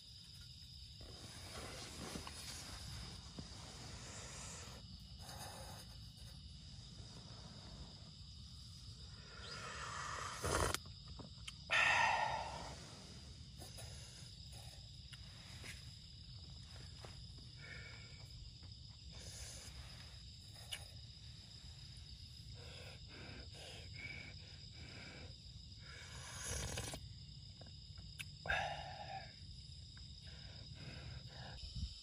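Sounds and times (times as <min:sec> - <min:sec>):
high insect chirring: 0:00.0 - 0:32.0.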